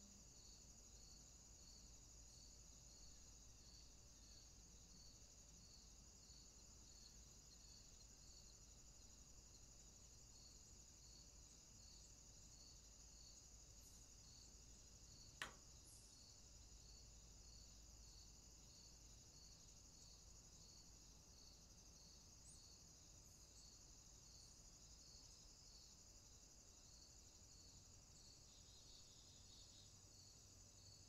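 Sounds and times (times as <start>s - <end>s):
insects trilling: 0.0s - 31.0s.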